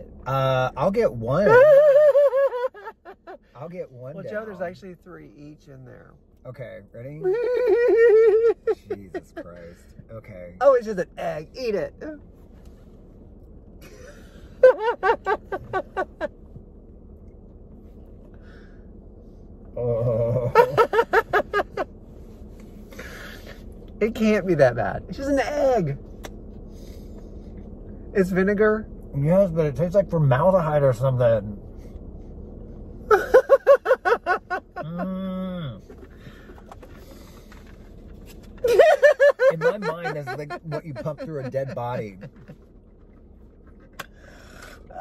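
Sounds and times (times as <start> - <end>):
car cabin background: 0.0 - 45.0
man laughing: 1.4 - 3.7, 7.2 - 9.7, 13.9 - 16.3, 19.8 - 21.8, 33.1 - 35.9, 38.6 - 42.6
man groaning: 19.8 - 20.6, 34.8 - 35.8
man laughing in rapid pulses: 38.7 - 42.6.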